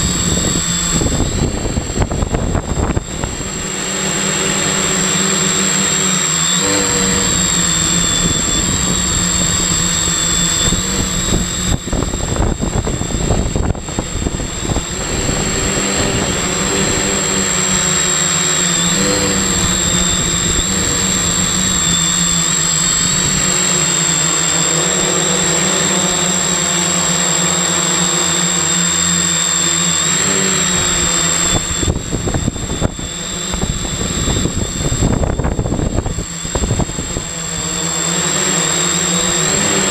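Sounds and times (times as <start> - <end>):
wind rumbling on microphone: 0.0 - 6.0, 6.6 - 23.7, 30.1 - 37.9
drone motors buzzing: 0.0 - 39.9.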